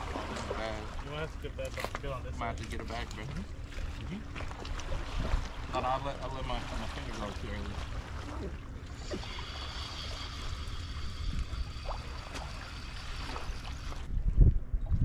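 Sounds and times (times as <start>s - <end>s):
wind rumbling on microphone: 1.7s - 15.0s
faint high whine: 8.8s - 14.1s.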